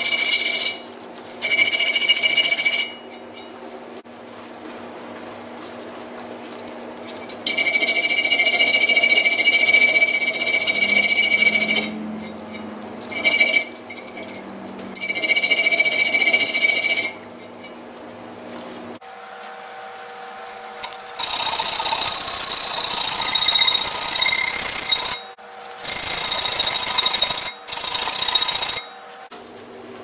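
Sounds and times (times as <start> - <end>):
sanding stick scraping metal: 7.2 - 17.8, 20.4 - 29.3.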